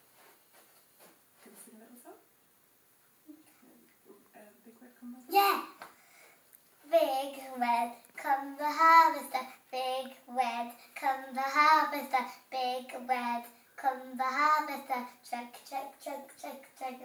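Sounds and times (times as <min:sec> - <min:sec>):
girl singing: 0:06.8 - 0:17.0.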